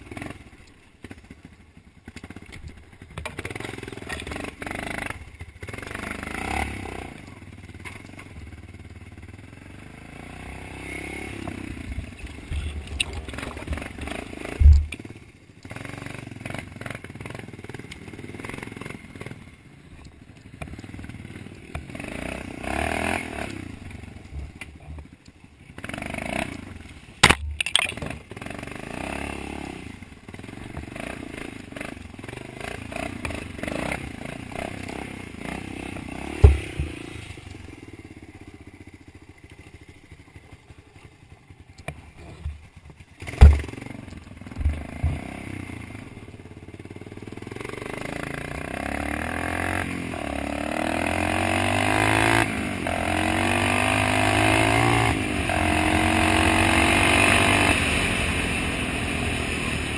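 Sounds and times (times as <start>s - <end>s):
dirt bike engine revving: 3.3s - 7.3s, 9.2s - 19.6s, 20.7s - 40.1s, 43.1s - 59.9s
sharp knocks: 14.6s - 15.0s, 36.4s - 37.0s, 43.3s - 43.8s.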